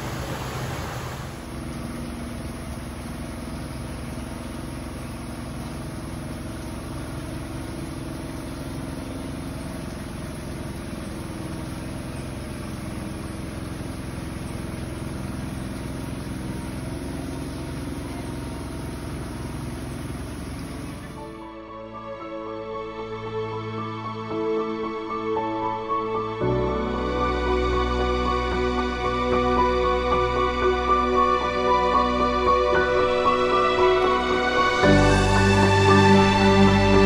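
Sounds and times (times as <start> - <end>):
rain falling on foliage: 0.0 - 21.4
low steady hum: 0.0 - 21.6.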